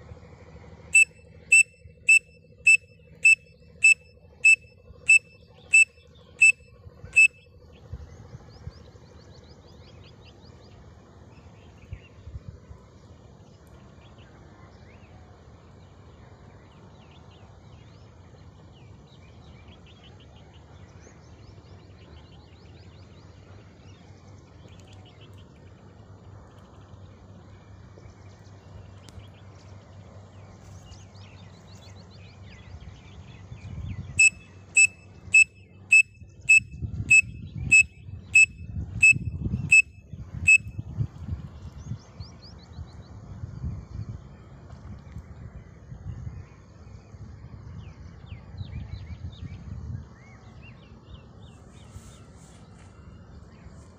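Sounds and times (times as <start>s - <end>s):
low outdoor rumble: 0.0s - 19.5s
shrill pen-cap whistle notes: 1.0s - 6.6s, 34.2s - 39.9s
faint bird chirps: 1.0s - 7.5s, 34.2s - 39.9s.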